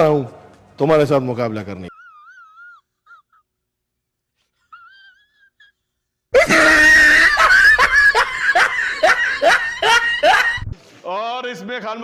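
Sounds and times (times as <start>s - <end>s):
person laughing wheezily: 4.6s - 10.7s.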